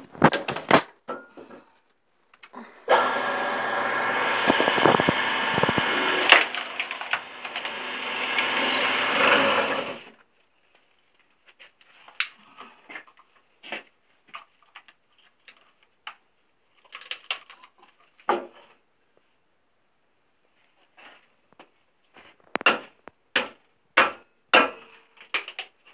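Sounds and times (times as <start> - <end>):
wood cracking and splintering: 2.4 - 10.1, 16.8 - 17.9
electric motor hum: 2.8 - 10.1.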